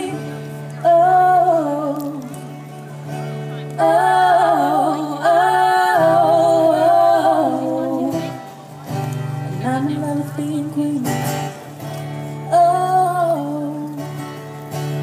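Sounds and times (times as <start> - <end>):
woman singing: 0.0 - 2.6, 3.7 - 8.5, 9.6 - 11.6, 12.4 - 14.1
acoustic guitar: 0.0 - 15.0.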